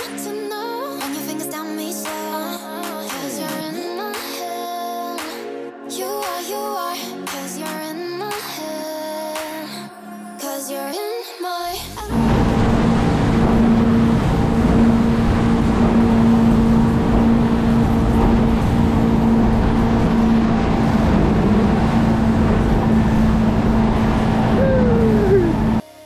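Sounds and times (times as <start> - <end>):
motorboat engine drone: 12.0 - 25.8
wind and water rushing: 12.1 - 25.8.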